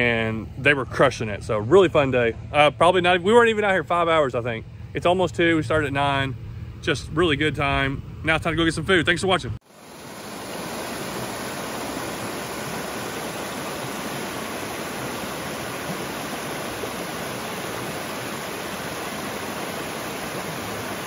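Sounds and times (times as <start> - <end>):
creek water rushing over rocks: 9.6 - 21.0.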